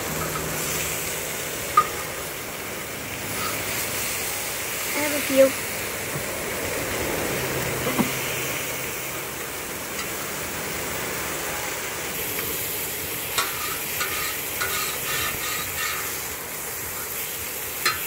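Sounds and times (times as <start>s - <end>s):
fish sizzling in a pan: 0.0s - 18.0s
metal spatula scraping a pan: 3.3s - 3.7s, 13.3s - 16.3s.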